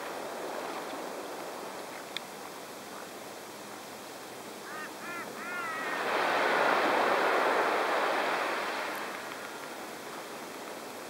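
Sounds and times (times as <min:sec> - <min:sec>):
gulls squawking: 0:04.7 - 0:06.1.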